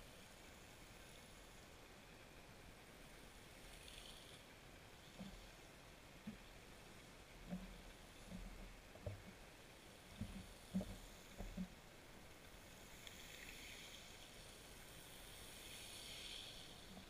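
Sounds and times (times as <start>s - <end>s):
faint hiss: 0.0s - 17.0s
soft low knocks: 10.1s - 11.8s.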